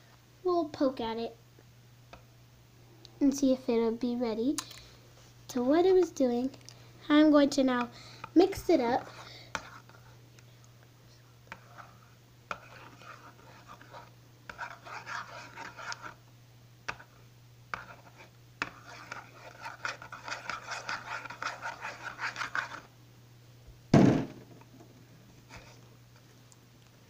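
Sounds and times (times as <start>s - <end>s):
slime squishing and scraping: 12.6s - 16.2s, 17.8s - 22.9s
loud thump: 23.9s - 24.6s.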